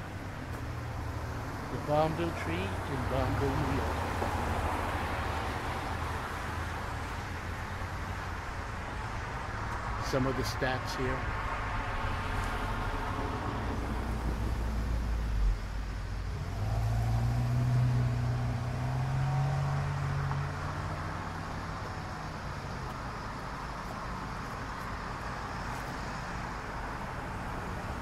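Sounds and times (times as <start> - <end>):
traffic rumble: 0.0 - 28.0
vehicle driving past: 16.3 - 22.2.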